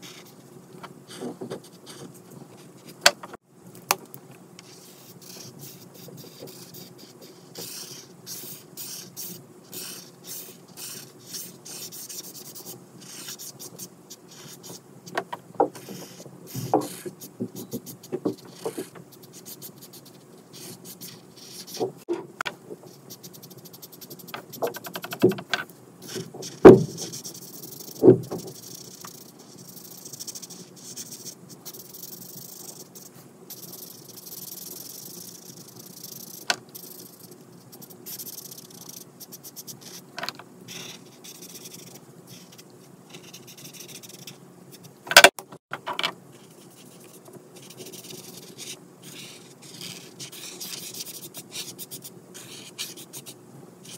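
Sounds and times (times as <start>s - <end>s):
marker scratching on paper: 0.0s - 0.4s, 1.1s - 3.0s, 4.6s - 22.1s, 22.8s - 45.4s, 46.4s - 53.9s
markers clicking and knocking: 14.4s - 19.7s, 20.6s - 46.1s.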